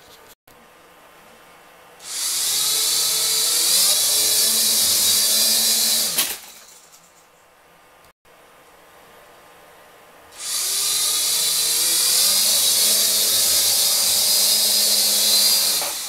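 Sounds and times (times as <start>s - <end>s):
quadcopter motors whining: 2.0s - 6.6s, 10.4s - 16.0s.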